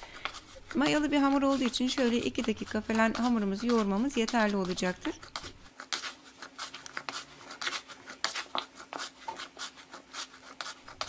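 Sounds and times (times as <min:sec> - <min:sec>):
hands kneading dough: 0:00.0 - 0:11.0.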